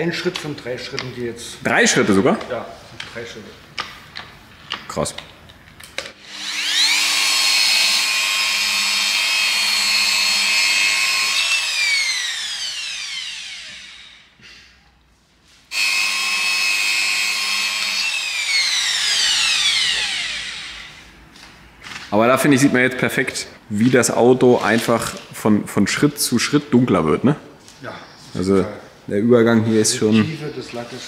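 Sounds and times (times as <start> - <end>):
rotary polisher whining: 6.1 - 14.4, 15.7 - 21.2.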